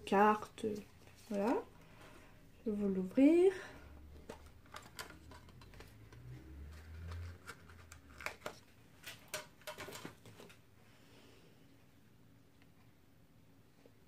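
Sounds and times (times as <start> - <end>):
plastic case clicks and crackles: 4.2 - 10.5.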